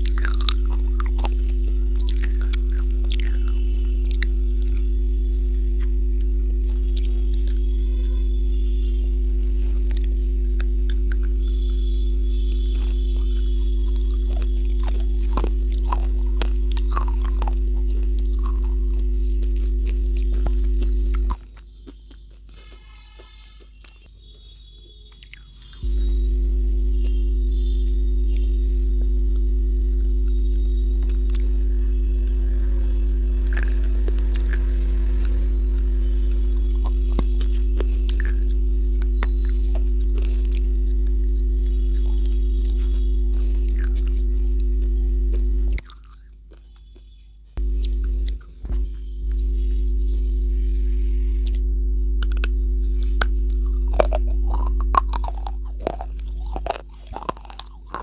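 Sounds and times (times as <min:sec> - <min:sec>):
biting and crunching hard slab: 0:00.0 - 0:01.3, 0:53.6 - 0:58.0
loud electrical hum: 0:00.0 - 0:58.0.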